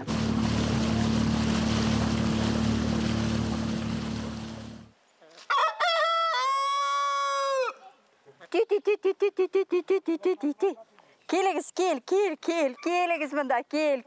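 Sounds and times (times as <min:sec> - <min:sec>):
boat motor running: 0:00.0 - 0:04.9
water splashing against hull: 0:00.0 - 0:05.0
rooster crowing: 0:05.5 - 0:07.8.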